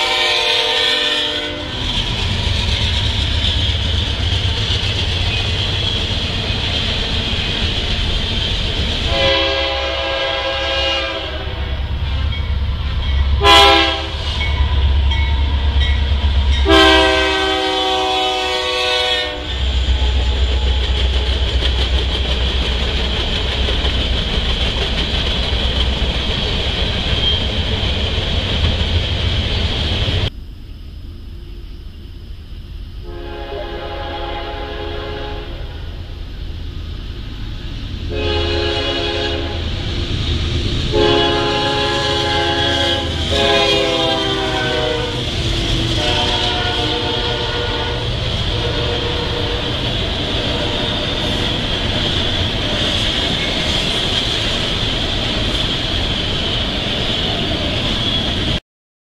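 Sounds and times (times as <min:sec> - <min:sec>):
locomotive air horn: 0:00.0 - 0:01.8, 0:09.0 - 0:11.8, 0:13.4 - 0:14.8, 0:16.6 - 0:20.9, 0:33.0 - 0:35.9, 0:38.1 - 0:39.7, 0:40.9 - 0:51.4
freight train rumbling past: 0:00.0 - 0:58.6
train wheel noise: 0:00.0 - 0:58.6.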